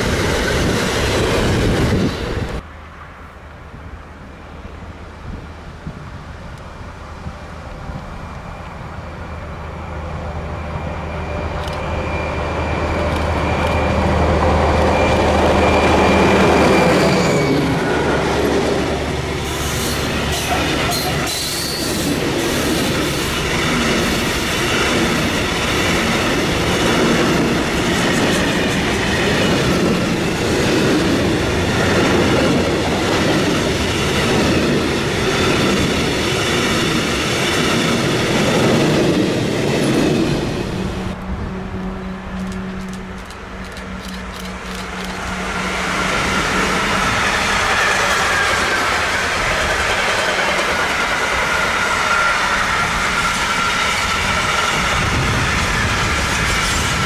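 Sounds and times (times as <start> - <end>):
locomotive drone: 0.0 - 57.0
train wheels clickety-clack: 11.3 - 40.6, 42.3 - 57.0.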